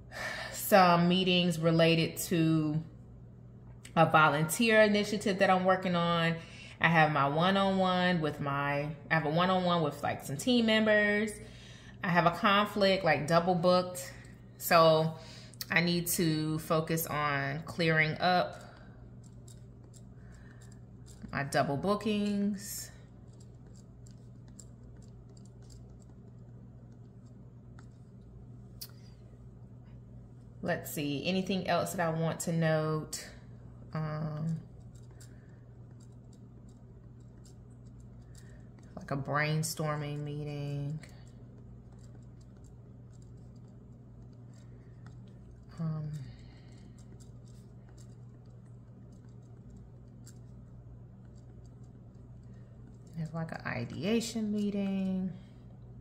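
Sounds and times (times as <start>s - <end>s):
steady low hum: 0.0s - 56.0s
pen scratching on paper: 19.2s - 21.5s, 23.0s - 28.2s, 34.5s - 39.3s, 41.0s - 45.7s, 46.6s - 53.1s.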